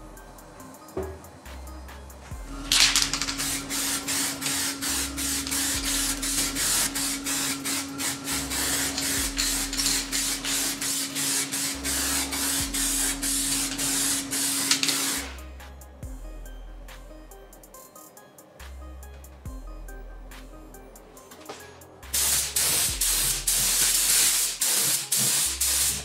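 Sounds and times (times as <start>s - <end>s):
low hum: 0.0s - 10.9s, 11.7s - 14.6s, 15.2s - 17.8s, 18.6s - 21.2s
compressed air spray hissing: 2.1s - 15.6s, 22.0s - 26.0s.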